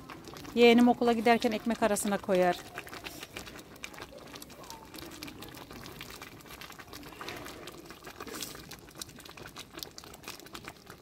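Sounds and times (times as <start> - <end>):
jam boiling with pops: 0.0 - 11.0.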